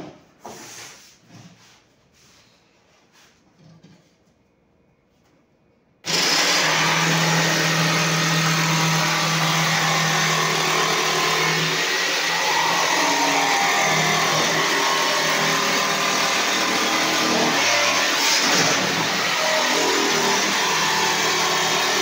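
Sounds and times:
jigsaw cutting wood: 0:06.1 - 0:22.0.

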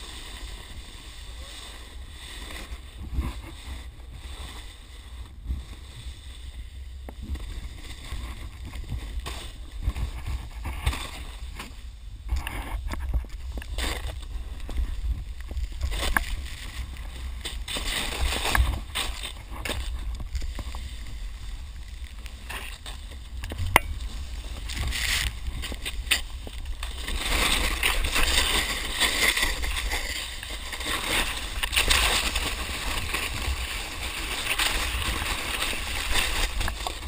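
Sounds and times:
snowboard hissing through snow: 0:00.0 - 0:08.2
wind buffeting microphone: 0:23.2 - 0:28.6.

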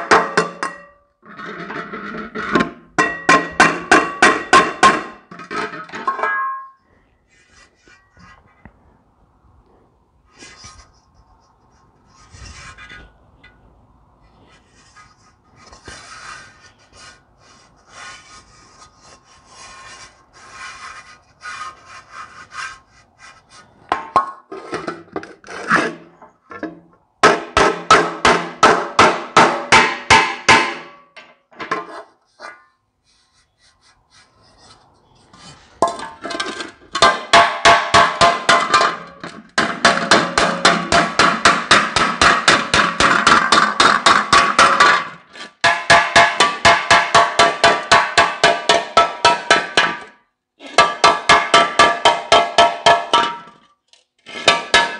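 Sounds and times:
hammer striking sheet metal: 0:00.0 - 0:00.9, 0:02.5 - 0:06.8, 0:27.2 - 0:32.6, 0:35.8 - 0:53.6, 0:54.3 - 0:54.9.

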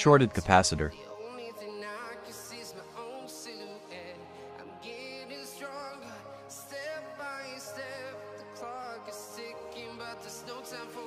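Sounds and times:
song with singing voice: 0:00.0 - 0:11.0.

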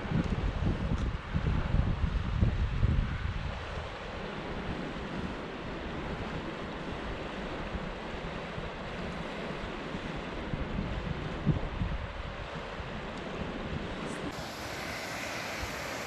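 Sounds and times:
wind buffeting microphone: 0:00.0 - 0:16.0
river water rushing: 0:14.3 - 0:16.0.

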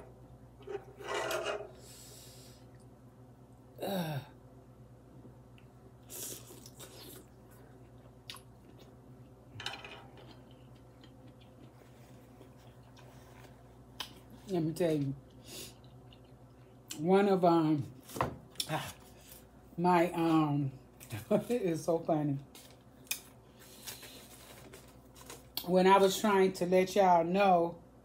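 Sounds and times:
chewing: 0:10.1 - 0:14.4, 0:15.3 - 0:17.0.

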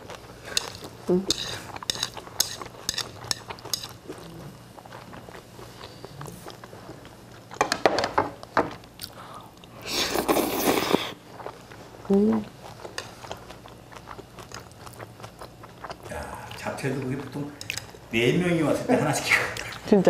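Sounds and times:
person chewing with mouth clicks: 0:00.0 - 0:07.6, 0:08.8 - 0:16.6
loud slurp of noodles: 0:09.9 - 0:11.2.

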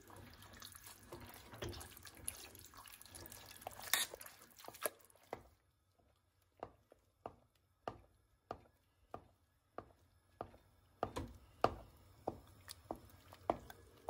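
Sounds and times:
masher squelching food: 0:00.0 - 0:10.6.

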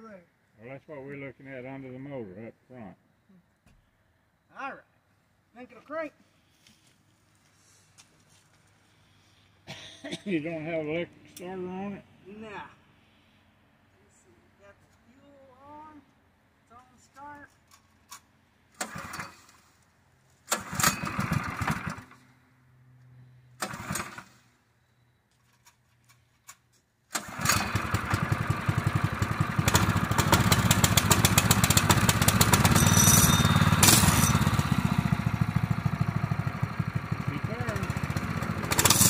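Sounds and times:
engine being pull-started: 0:18.8 - 0:19.7, 0:20.4 - 0:22.3, 0:23.6 - 0:24.5, 0:27.1 - 0:35.4, 0:37.9 - 0:39.0
engine running steadily: 0:27.2 - 0:39.0.

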